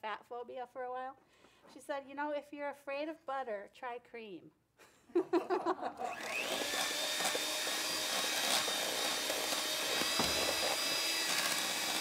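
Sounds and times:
electric hand mixer running: 6.0 - 12.0
dull knock: 10.2 - 10.6.

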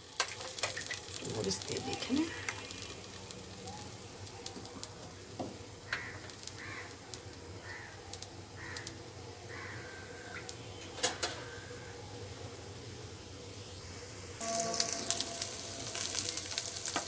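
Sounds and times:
food sizzling in oil: 0.0 - 9.2, 11.9 - 17.0
bird calling: 1.7 - 4.5.

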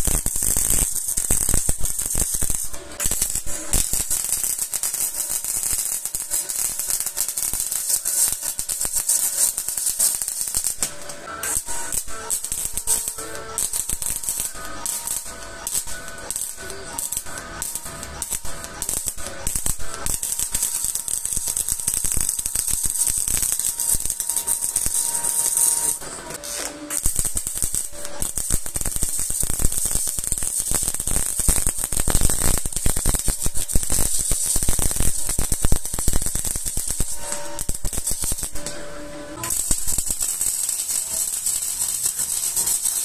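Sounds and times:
welding arc crackling: 0.0 - 43.0.

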